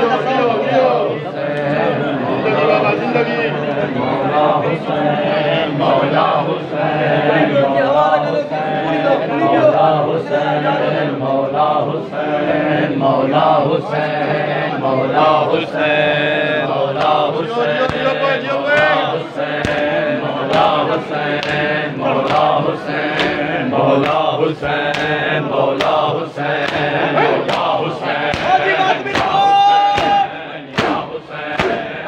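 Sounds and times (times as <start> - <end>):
men chanting a lament in unison: 0.0 - 32.0
hands slapping chests: 17.0 - 31.9.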